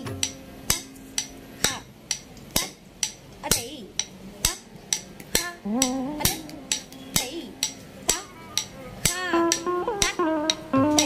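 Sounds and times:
stick striking wooden block: 0.0 - 11.0
person calling syllables: 5.4 - 11.0
person singing: 5.4 - 11.0.

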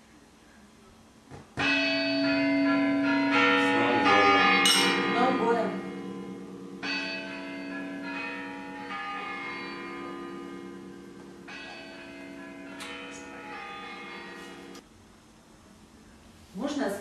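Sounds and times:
bells chiming: 1.6 - 14.8.

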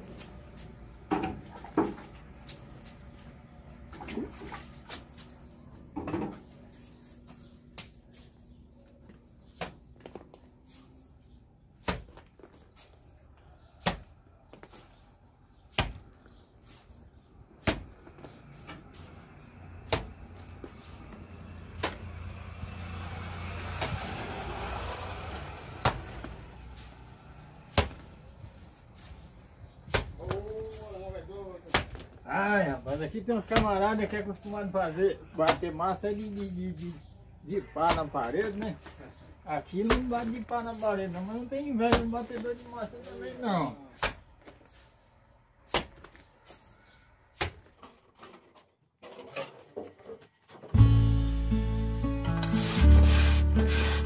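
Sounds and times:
mortar slapping onto wall: 11.8 - 12.6, 13.8 - 14.8, 15.7 - 16.1, 17.6 - 18.3, 19.8 - 20.9, 21.7 - 22.2, 23.7 - 25.0, 25.7 - 26.9, 27.7 - 28.2, 29.8 - 30.9, 31.6 - 32.8, 39.8 - 40.5, 41.8 - 42.6, 43.9 - 44.8, 45.6 - 46.6, 47.3 - 47.8.

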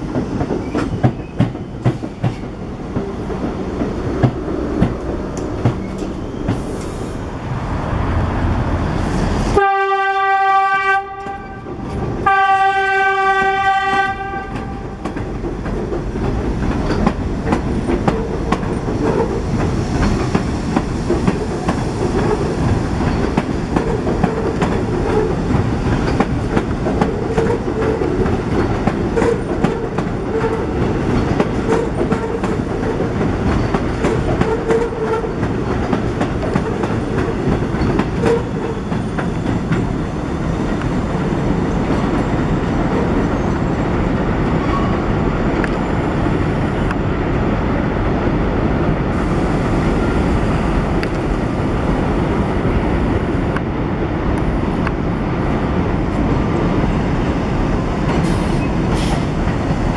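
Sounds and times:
train wheels clattering over rail joints: 0.0 - 6.9, 13.4 - 43.3
train rumble: 0.0 - 59.9
train wheel squeals: 0.5 - 2.6, 5.6 - 7.2, 42.2 - 46.0, 58.2 - 59.3.

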